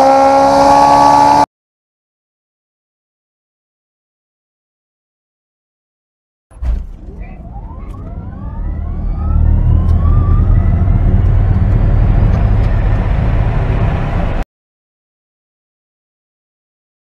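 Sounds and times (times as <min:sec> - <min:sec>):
car engine whine accelerating: 0:00.0 - 0:01.5, 0:06.5 - 0:14.4
road and wind rumble: 0:06.5 - 0:14.4.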